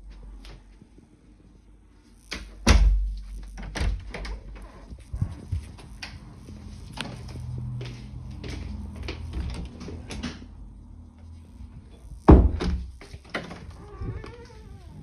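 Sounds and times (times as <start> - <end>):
footsteps on laminate floor: 6.5 - 10.0.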